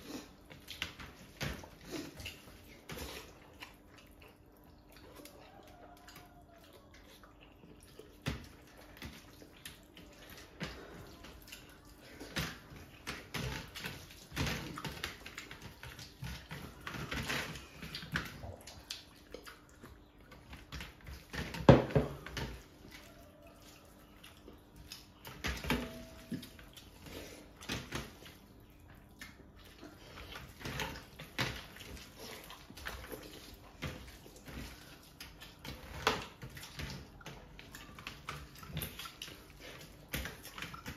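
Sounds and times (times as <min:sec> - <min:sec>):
open-mouthed chewing: 0:00.0 - 0:21.5, 0:22.5 - 0:40.9
hands squelching rice and curry: 0:22.4 - 0:40.9.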